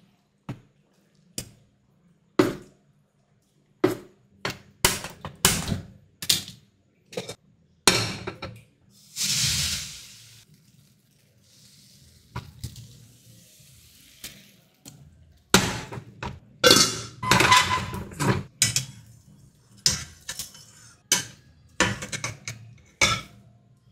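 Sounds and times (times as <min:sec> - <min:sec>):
gas flame hiss: 0:09.0 - 0:10.4
gas burner igniting: 0:09.1 - 0:10.4
steel utensils clinking and scraping: 0:16.6 - 0:23.4.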